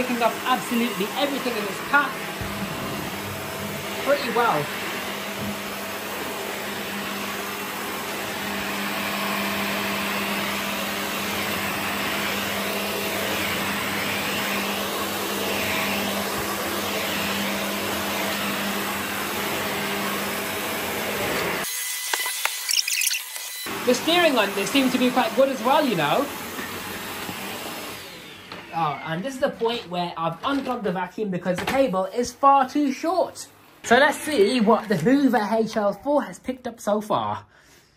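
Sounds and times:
vacuum cleaner on carpet: 0.0s - 22.8s, 23.4s - 30.0s.

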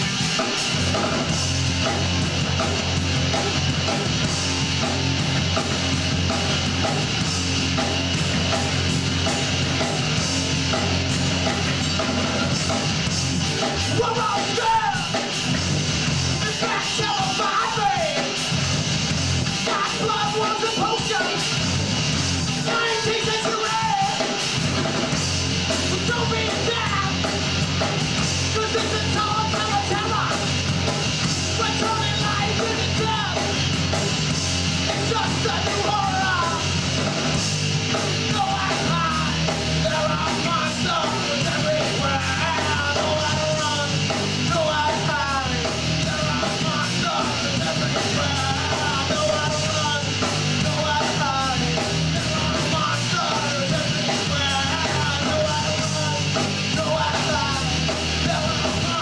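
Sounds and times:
rock band playing live: 0.0s - 59.0s
person singing: 38.3s - 59.0s.

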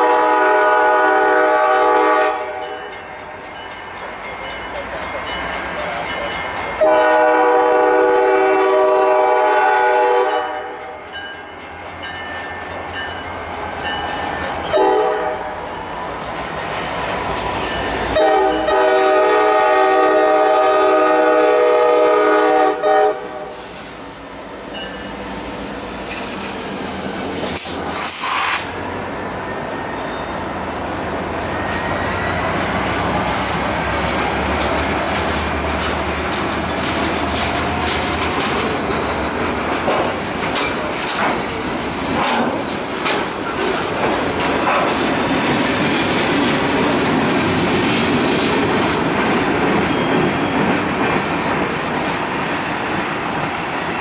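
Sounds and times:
train horn blast: 0.0s - 2.9s, 6.8s - 10.9s, 14.7s - 15.6s, 18.1s - 23.6s
wheel squeal: 25.5s - 26.7s, 29.5s - 40.1s, 44.6s - 46.1s
air hiss: 27.3s - 28.9s
wheels clicking over rail joints: 34.0s - 53.8s.

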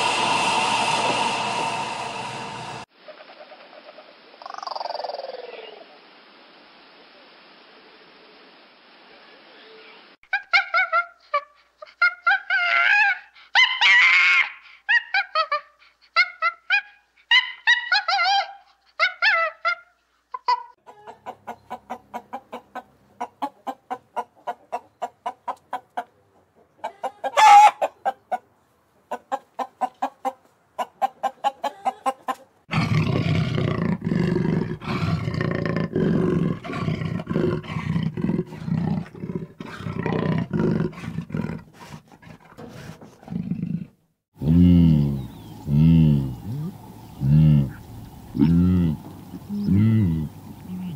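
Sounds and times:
low drawn-out calls: 0.0s - 2.9s, 44.4s - 50.9s
chicken squawk: 10.3s - 28.5s, 29.1s - 32.5s
hen clucking: 20.3s - 32.6s
chickens honking calls: 26.7s - 28.4s, 29.1s - 32.6s.

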